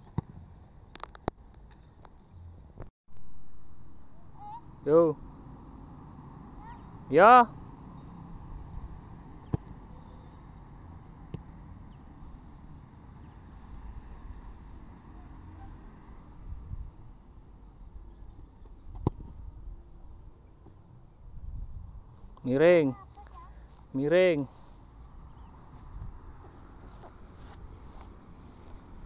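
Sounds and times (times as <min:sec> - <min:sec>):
faint insects chirping: 0:01.8 - 0:29.0
football being kicked: 0:09.4 - 0:09.8, 0:18.9 - 0:19.3.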